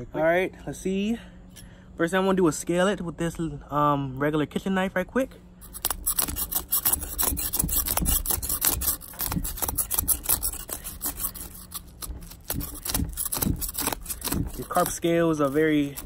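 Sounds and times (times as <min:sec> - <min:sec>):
knife scraping fish scales: 0:05.6 - 0:16.0.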